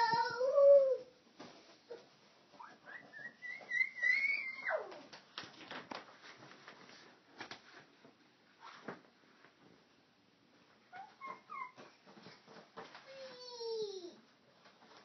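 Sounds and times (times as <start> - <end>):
high vocal squeaks: 2.6 - 5.0, 10.9 - 12.0.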